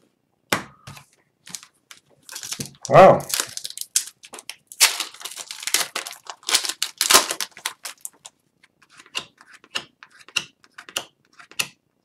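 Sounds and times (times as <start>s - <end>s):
wrapper crinkling and tearing: 1.5s - 8.4s.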